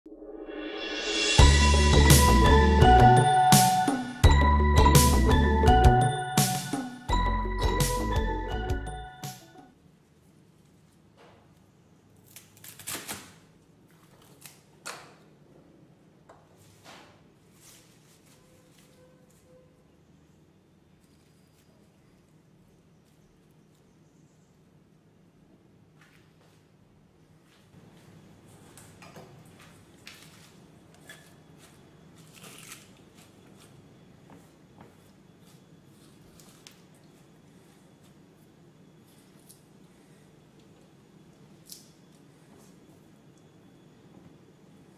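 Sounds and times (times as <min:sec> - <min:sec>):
leafy stems rustling on board: 0:16.7 - 0:19.5, 0:29.5 - 0:33.8.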